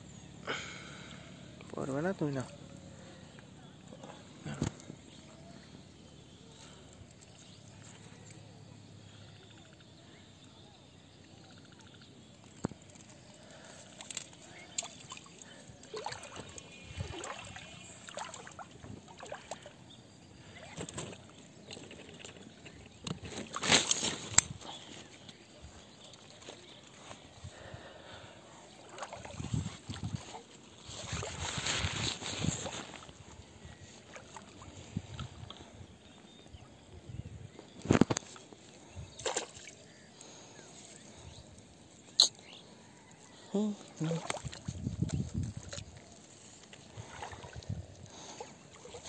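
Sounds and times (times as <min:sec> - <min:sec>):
shallow water splashing and sloshing: 0:12.5 - 0:19.8, 0:28.7 - 0:35.7, 0:38.2 - 0:40.1, 0:44.0 - 0:49.0
sharp water splashes: 0:14.5 - 0:19.7.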